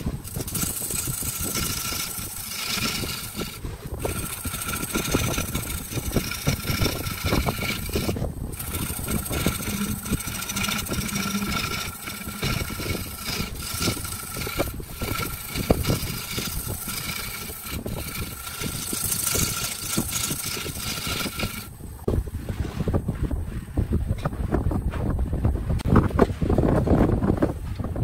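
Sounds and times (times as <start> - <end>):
tool scraping spinning wood: 0.0 - 23.0
lathe motor whine: 0.2 - 21.7.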